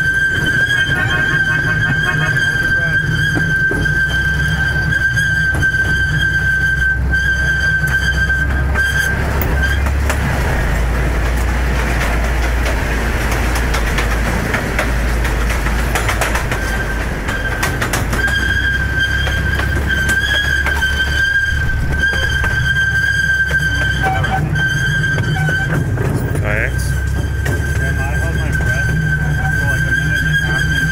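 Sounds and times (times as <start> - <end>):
miniature train rumbling: 0.0 - 30.9
wheel clicks over rail joints: 7.8 - 30.9.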